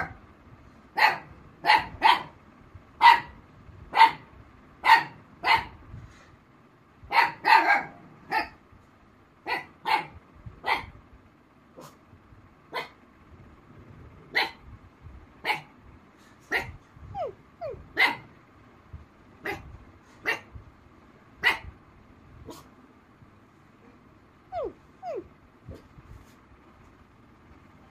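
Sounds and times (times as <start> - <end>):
dog barking: 0.0 - 0.2, 0.9 - 2.4, 3.0 - 5.8, 7.1 - 8.6, 9.4 - 10.9, 11.8 - 12.0, 12.7 - 13.0, 14.3 - 14.6, 15.4 - 15.7, 16.5 - 16.8, 17.9 - 18.3, 19.4 - 20.5, 21.4 - 21.7, 22.4 - 22.7.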